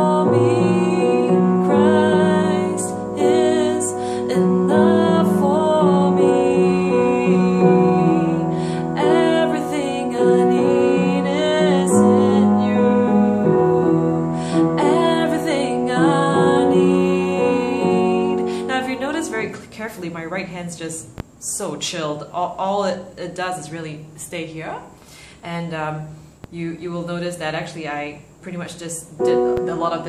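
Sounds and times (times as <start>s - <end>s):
upright piano playing chords: 0.0s - 19.5s, 29.2s - 30.0s
woman singing: 0.0s - 21.0s, 29.0s - 30.0s.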